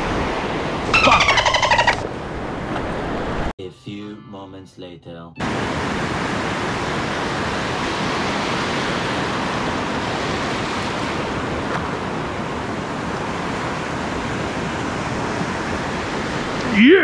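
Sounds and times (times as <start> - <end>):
waves breaking: 5.4 - 17.0.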